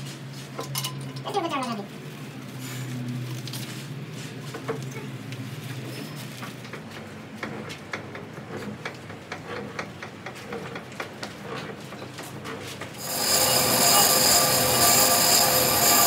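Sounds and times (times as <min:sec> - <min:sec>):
low machine hum: 0:13.0 - 0:16.0.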